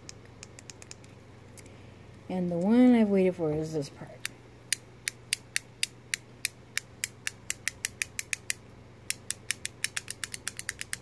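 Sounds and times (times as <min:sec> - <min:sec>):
fidget cube plastic clicks: 0:04.2 - 0:11.0.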